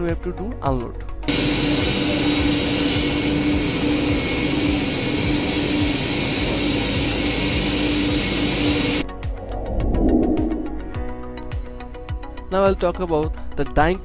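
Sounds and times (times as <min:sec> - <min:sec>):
constant machinery hum: 0:01.3 - 0:09.0
factory machinery rushing noise: 0:01.3 - 0:11.1.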